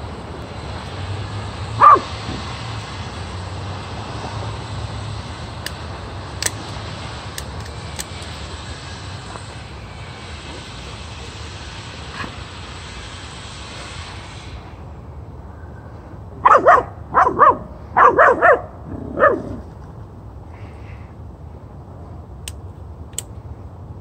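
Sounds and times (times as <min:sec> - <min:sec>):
puppy barking: 0:01.8 - 0:02.4, 0:16.4 - 0:19.5.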